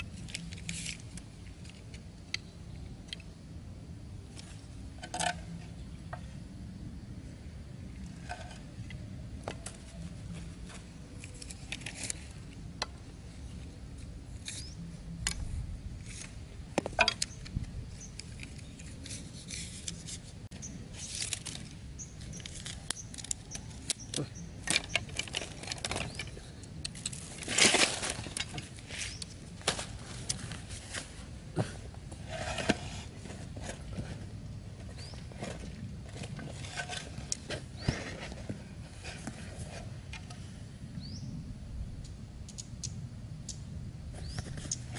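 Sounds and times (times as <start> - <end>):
bamboo sticks clicking and rustling: 0.0 - 3.4, 4.3 - 6.3, 8.0 - 13.1, 13.9 - 31.3, 34.8 - 40.5, 42.4 - 43.6
scraping rustle: 16.0 - 23.9, 27.0 - 40.4.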